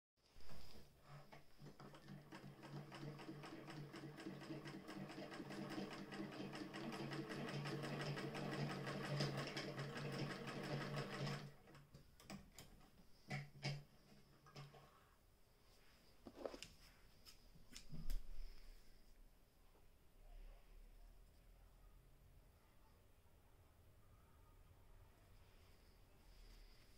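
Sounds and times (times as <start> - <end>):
hand-crank sewing machine clicking: 1.5 - 13.8.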